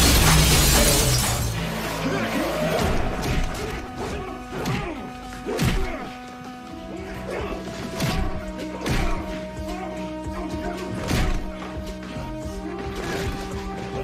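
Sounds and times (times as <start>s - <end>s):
sharp hits and crashes: 0.0s - 1.7s
background music with held tones: 0.0s - 14.0s.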